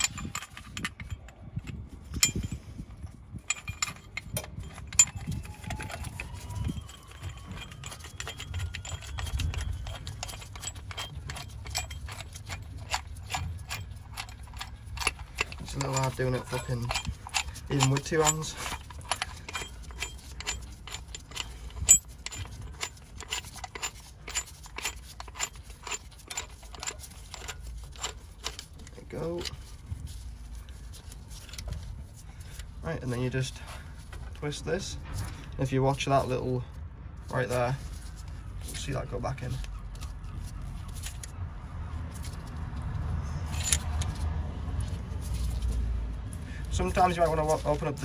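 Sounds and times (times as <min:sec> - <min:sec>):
low steady rumble: 0:00.0 - 0:48.0
metallic ratchet clicks: 0:03.5 - 0:29.6.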